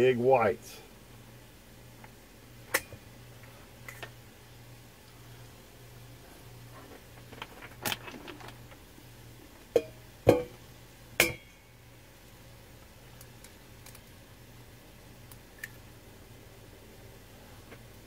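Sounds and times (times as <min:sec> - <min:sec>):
eggs cracking: 0:15.2 - 0:15.9.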